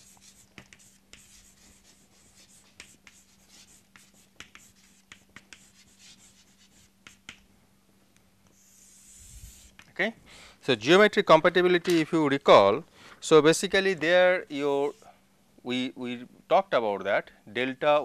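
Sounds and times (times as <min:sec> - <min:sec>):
chalk scratching on chalkboard: 0:00.0 - 0:07.4, 0:08.5 - 0:09.8
chalk taps: 0:00.0 - 0:07.5.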